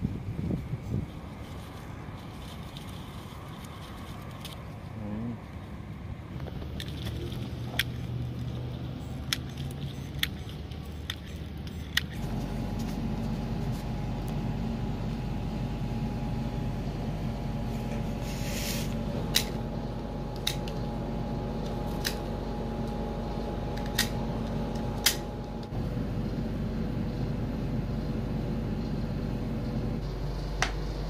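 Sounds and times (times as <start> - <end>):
steady hum: 9.8 - 31.0
short scrape: 18.1 - 19.0.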